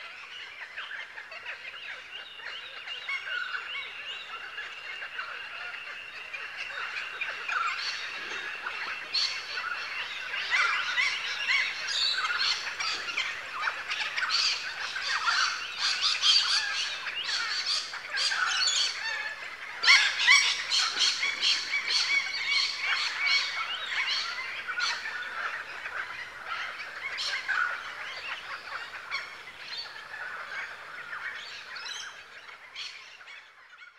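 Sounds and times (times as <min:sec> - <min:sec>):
flock of birds squawking: 0:00.0 - 0:33.9.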